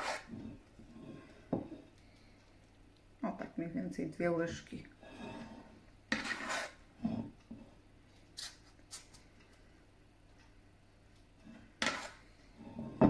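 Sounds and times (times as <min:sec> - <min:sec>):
spoon scraping metal bowl: 0:00.0 - 0:01.2, 0:05.1 - 0:07.3, 0:11.8 - 0:12.3.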